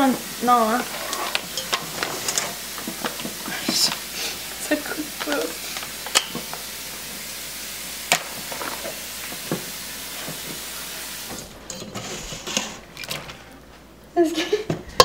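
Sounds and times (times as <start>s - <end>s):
steady hiss: 0.0s - 12.9s
blueberries tapping into metal bowl: 1.3s - 4.0s.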